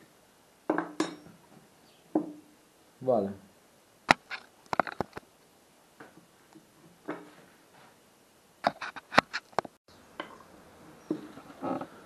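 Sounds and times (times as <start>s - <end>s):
tools knocking on wooden workbench: 0.7s - 1.3s, 2.1s - 2.4s.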